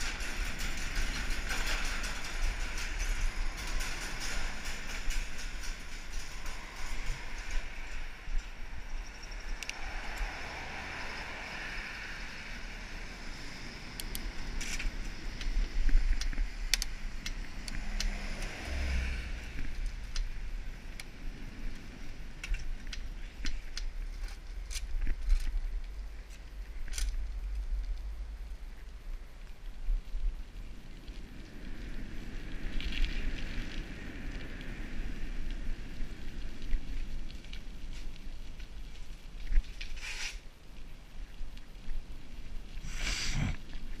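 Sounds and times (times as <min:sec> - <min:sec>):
bike clicks and rattles: 0:00.0 - 0:10.3, 0:11.6 - 0:44.0
wind buffeting microphone: 0:00.0 - 0:39.9
tyre hiss on wet road: 0:09.5 - 0:19.8, 0:39.9 - 0:40.6, 0:42.7 - 0:44.0.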